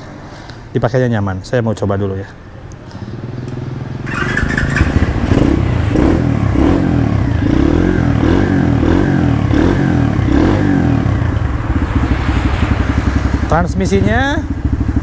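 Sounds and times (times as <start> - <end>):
motorcycle engine revving: 3.0 - 15.0.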